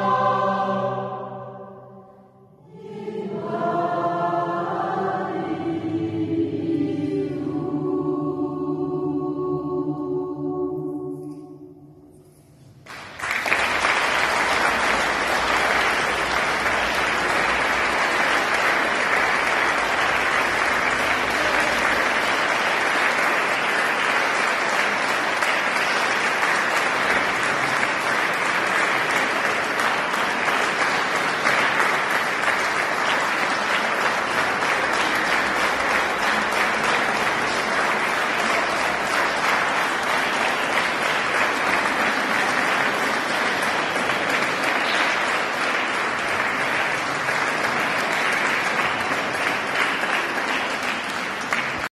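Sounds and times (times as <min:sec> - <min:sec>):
choir singing final chord: 0:00.0 - 0:47.4
audience applauding: 0:12.8 - 0:51.9.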